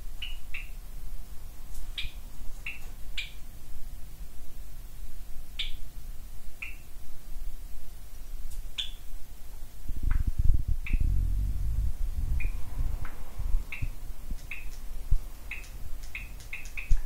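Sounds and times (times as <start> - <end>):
cage birds chirping: 0.0 - 0.8, 1.5 - 3.6, 5.5 - 5.9, 6.5 - 7.0, 8.5 - 9.2, 10.0 - 11.2, 12.3 - 17.0
low rumble: 10.2 - 16.0.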